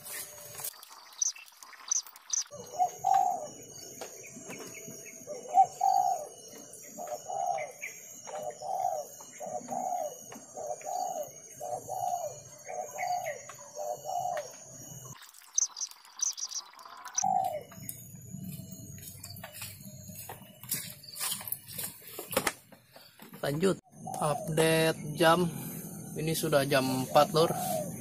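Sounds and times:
dove cooing: 0:02.5 - 0:03.7, 0:05.2 - 0:14.6, 0:16.8 - 0:17.9, 0:23.9 - 0:25.2, 0:25.8 - 0:28.0.

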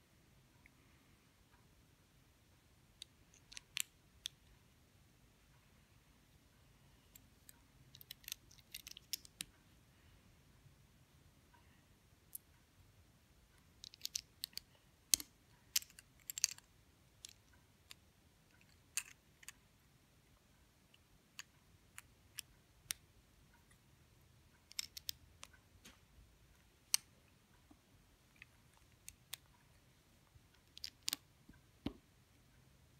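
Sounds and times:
plastic bricks clicking together: 0:03.3 - 0:04.4, 0:07.9 - 0:09.5, 0:13.8 - 0:18.0, 0:18.6 - 0:19.6, 0:24.6 - 0:25.5, 0:30.6 - 0:31.2.

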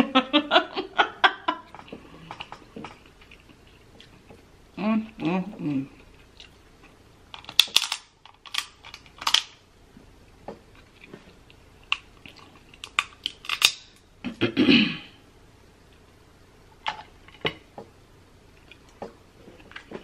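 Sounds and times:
crab shells cracking: 0:07.3 - 0:09.6, 0:11.9 - 0:14.0.

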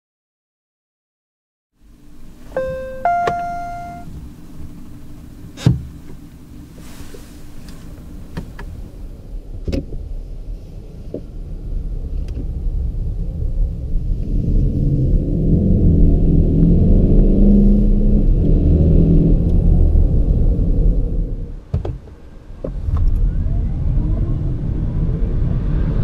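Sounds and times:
road and drivetrain hum: 0:01.9 - 0:22.7
car engine accelerating: 0:02.1 - 0:06.7, 0:13.5 - 0:21.5
two-note rising chime: 0:02.6 - 0:04.1.

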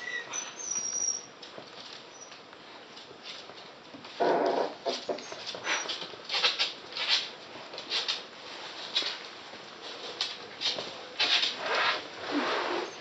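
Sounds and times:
high puppy squeaks: 0:00.0 - 0:01.3.

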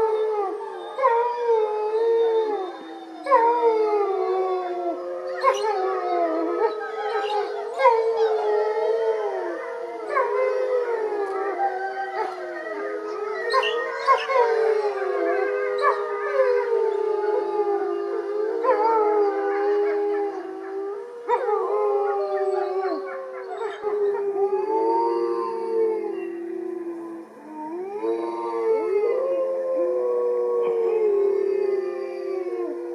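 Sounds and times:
wolves howling in chorus: 0:00.0 - 0:32.9.

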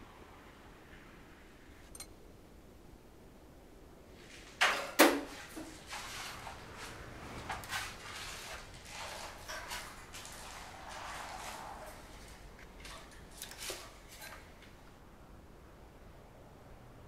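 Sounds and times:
scraping and clattering: 0:04.4 - 0:14.8.

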